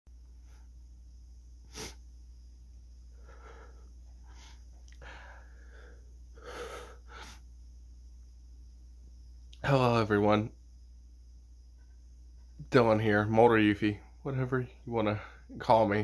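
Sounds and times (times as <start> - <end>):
man sniffing: 1.6 - 2.1, 3.1 - 7.5
shaky breaths and sniffles: 3.0 - 7.5.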